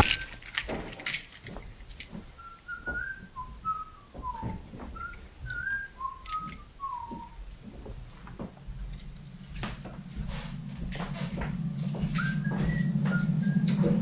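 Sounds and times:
room noise: 0:00.0 - 0:14.0
person whistling a tune: 0:02.4 - 0:07.4, 0:12.1 - 0:14.0.

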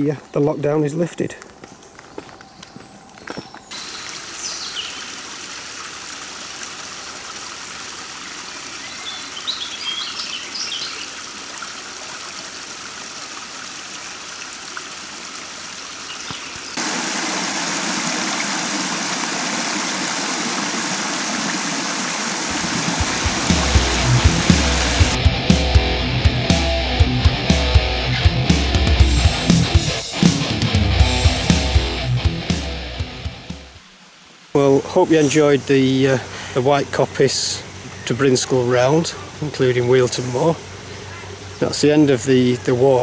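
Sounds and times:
bird calls: 0:01.4 - 0:05.2, 0:08.2 - 0:11.9, 0:16.0 - 0:16.8, 0:36.3 - 0:43.0
stream splashing over rocks: 0:03.7 - 0:25.2
water rushing over weir: 0:03.8 - 0:25.2
music with low beat: 0:22.5 - 0:33.8.

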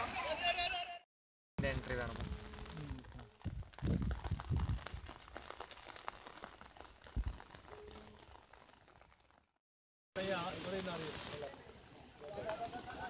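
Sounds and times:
wind gusts on microphone: 0:01.6 - 0:05.2, 0:07.1 - 0:07.6
light crackling: 0:01.6 - 0:09.6, 0:10.2 - 0:13.0
faint steady hiss: 0:10.2 - 0:13.0.

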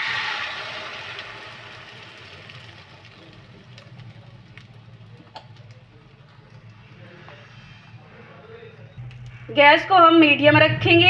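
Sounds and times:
egg batter sizzling in oil: 0:00.0 - 0:07.9
sharp crackles: 0:00.2 - 0:07.4.

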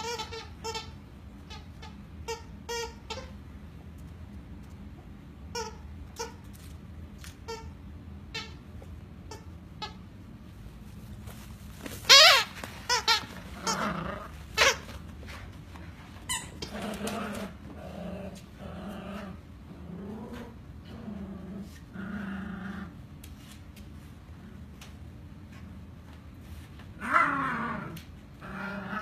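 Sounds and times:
puppies play-growling: 0:11.8 - 0:24.9, 0:26.9 - 0:29.0.

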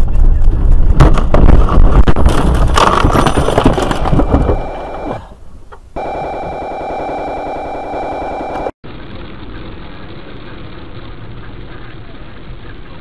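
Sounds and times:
knocks and clattering: 0:00.1 - 0:04.8.

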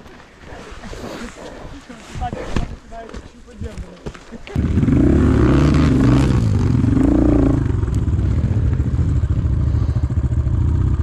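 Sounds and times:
motorcycle engine revving and idling: 0:04.5 - 0:11.0.

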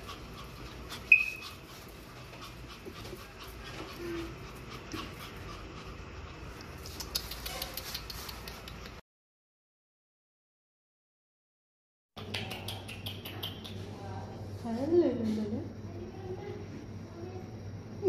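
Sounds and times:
small dog panting: 0:00.0 - 0:09.0
dog claws clicking on tile: 0:06.8 - 0:09.0.

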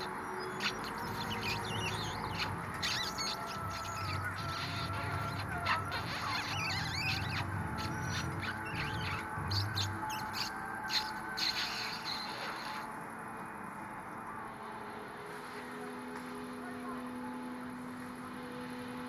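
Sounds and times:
high chirp-like squeaks: 0:00.0 - 0:13.0.

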